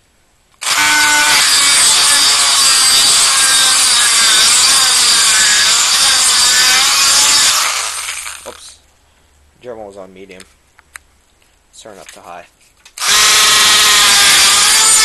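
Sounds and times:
rotary tool grinding: 0.6s - 8.8s, 12.9s - 15.0s.

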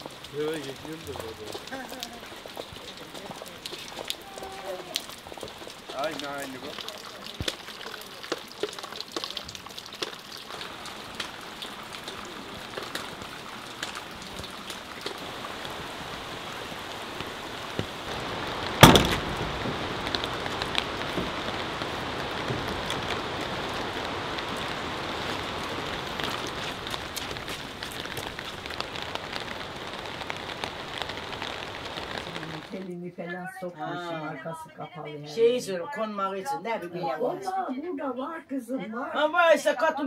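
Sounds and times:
rain pattering: 0.0s - 38.2s
sharp loud knock: 18.8s - 19.3s.

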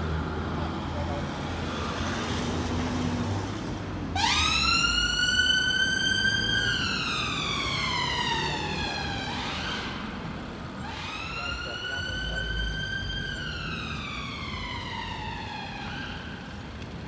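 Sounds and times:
road traffic rumble: 0.0s - 17.0s
ambulance siren wailing: 4.1s - 16.8s.

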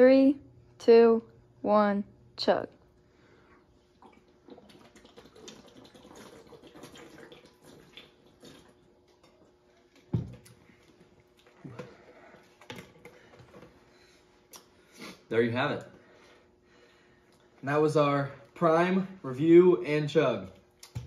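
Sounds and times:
breaths: 3.0s - 3.7s, 15.9s - 17.4s
people gulping from plastic bottles: 3.6s - 13.9s.

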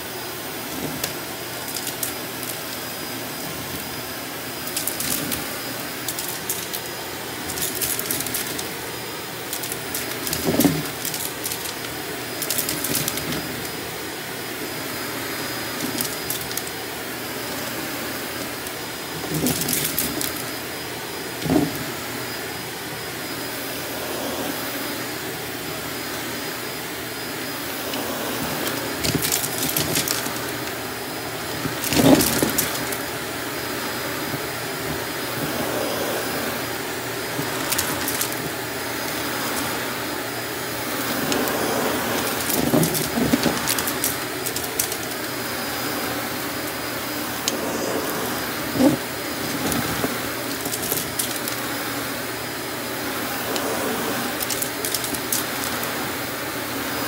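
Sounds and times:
vacuum cleaner running on carpet: 0.0s - 57.0s
debris crackling and rattling: 0.6s - 2.9s, 4.5s - 13.9s, 15.6s - 16.9s, 18.3s - 20.6s, 28.5s - 33.2s, 37.2s - 45.4s, 48.5s - 51.6s, 54.3s - 55.9s.

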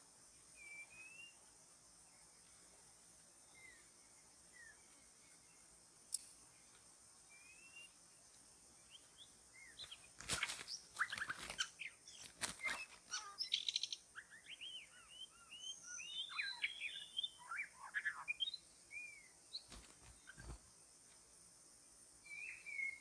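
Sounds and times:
high insect drone: 0.0s - 23.0s
bird singing varied whistles: 0.6s - 1.4s, 7.3s - 8.0s, 10.7s - 19.3s, 22.3s - 23.0s.

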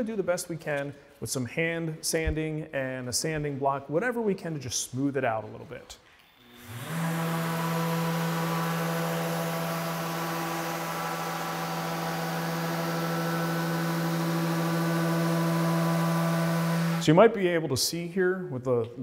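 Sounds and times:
orbit sander motor hum: 6.3s - 17.1s.

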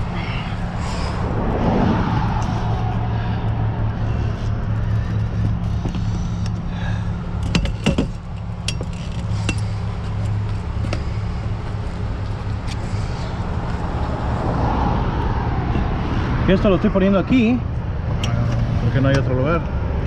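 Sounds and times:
truck engine idling: 2.2s - 14.4s.

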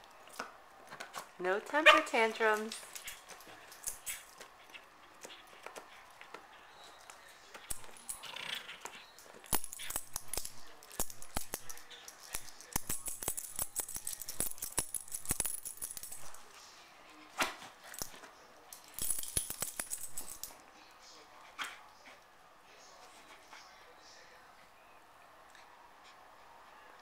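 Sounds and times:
collar tags jingling: 1.7s - 16.5s, 17.8s - 20.6s
dog gnawing on a bone: 2.6s - 16.5s.

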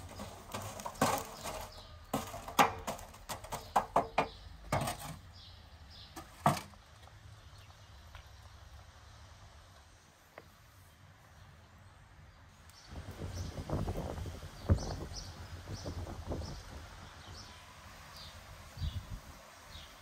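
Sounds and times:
sharp knocks and clatters: 0.0s - 5.2s.

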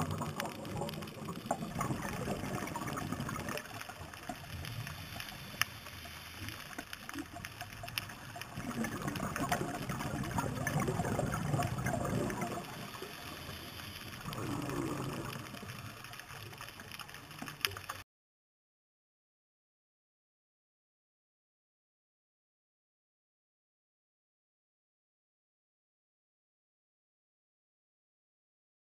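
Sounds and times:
underwater bubbles gurgling: 0.0s - 18.0s.

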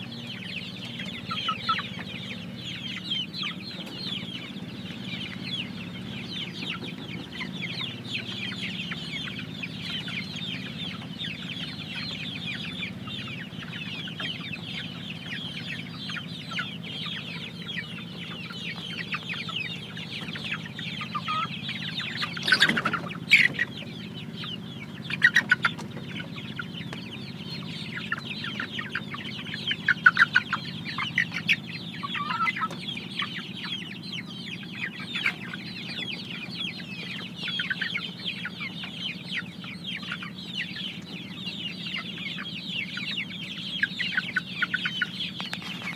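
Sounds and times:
chickens clucking: 0.0s - 45.9s.

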